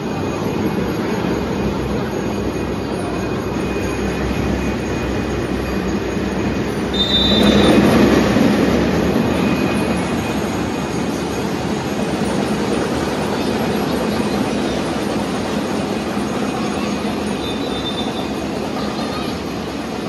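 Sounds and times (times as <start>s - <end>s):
crowd din: 0.0s - 20.0s
short high whistle: 6.9s - 7.8s.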